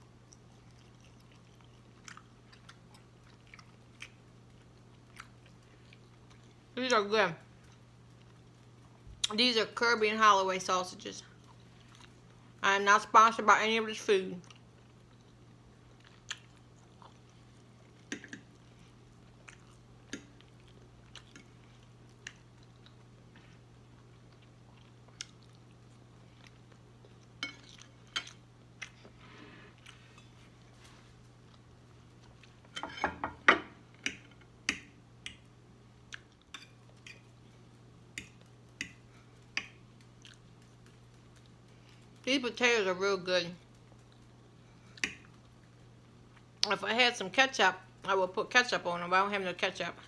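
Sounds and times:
faint low hum: 0.0 - 50.0
chewing and mouth smacking: 0.1 - 6.6, 14.4 - 29.2, 36.1 - 37.4, 38.2 - 42.3.

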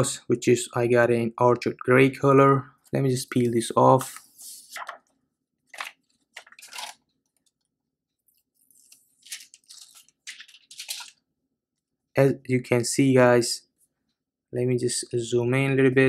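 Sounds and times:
plastic film crinkling: 5.7 - 7.6, 8.6 - 11.2.

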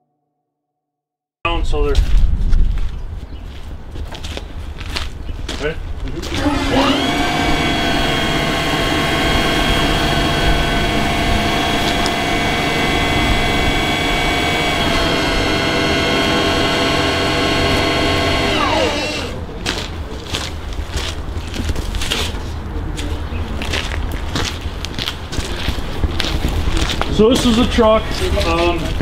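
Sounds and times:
pneumatic pump whine: 6.2 - 19.5.

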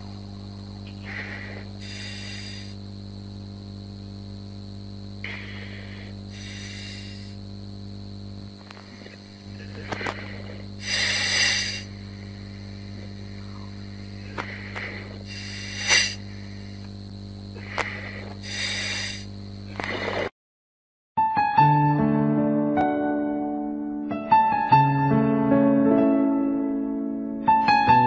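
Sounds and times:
steady electrical hum: 0.0 - 20.3
bursts of hiss: 0.8 - 3.0, 5.2 - 7.5, 8.6 - 20.3.

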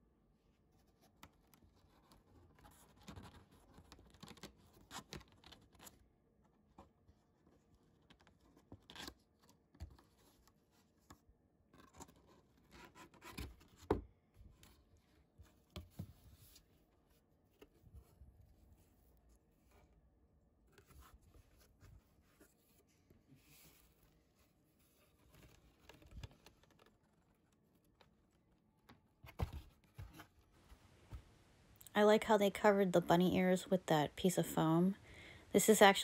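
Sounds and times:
cardboard scraping and rustling: 20.7 - 27.9, 29.2 - 31.3
cardboard clicks and knocks: 28.9 - 30.4.

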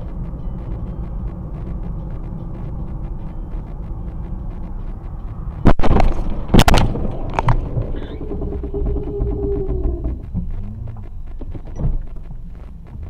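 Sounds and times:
car road rumble: 0.0 - 13.0.

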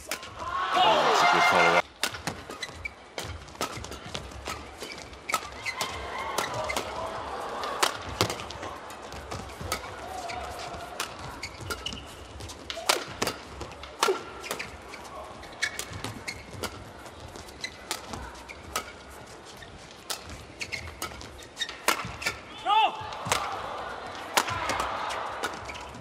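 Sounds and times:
shoes squeaking on court: 1.1 - 7.2, 7.9 - 22.5, 25.1 - 26.0
rackets striking shuttlecock: 1.5 - 8.6, 9.2 - 14.9, 15.6 - 16.9, 17.6 - 19.1, 19.9 - 22.5, 23.1 - 26.0
crowd murmur: 5.8 - 11.4, 22.9 - 26.0.

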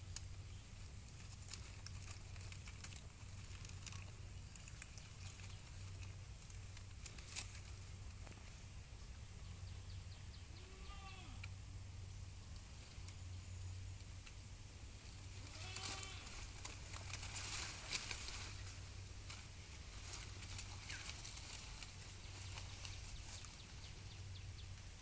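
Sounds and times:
leaves and stems snapping: 0.1 - 8.4, 15.0 - 23.8
goat bleating: 10.5 - 11.5, 15.4 - 16.5.

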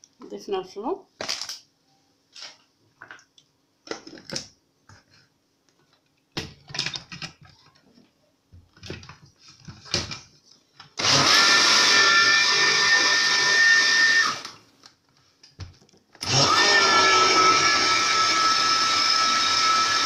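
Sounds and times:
blender whining: 11.0 - 14.6, 16.2 - 20.0.

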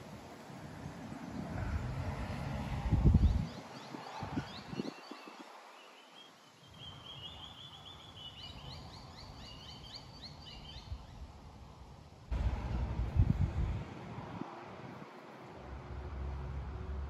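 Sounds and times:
wind on microphone: 0.7 - 5.6, 12.3 - 15.9
songbird chirping: 3.2 - 11.3.

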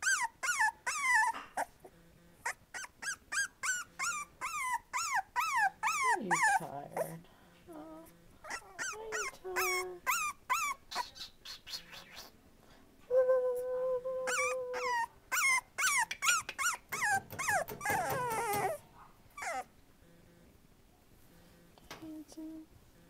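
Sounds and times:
puppy whimpering: 0.0 - 7.2, 7.8 - 11.1, 14.1 - 19.7.

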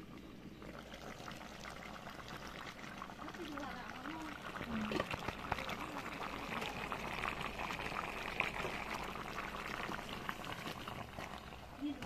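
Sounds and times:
curry bubbling in a pot: 0.0 - 12.0.

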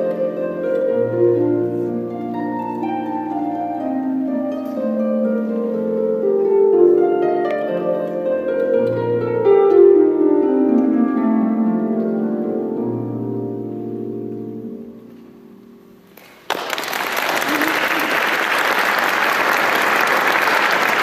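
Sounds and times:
audience applause: 16.2 - 21.0.

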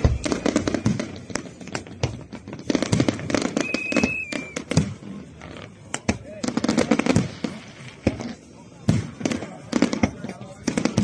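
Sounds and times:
fireworks bangs and crackles: 0.0 - 11.0
firework whistle: 3.1 - 5.0.

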